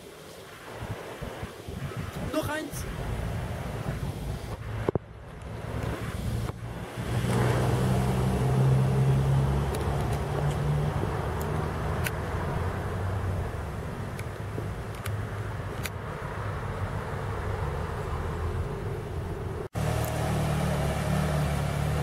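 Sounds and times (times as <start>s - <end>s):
van engine drone: 4.6s - 22.0s.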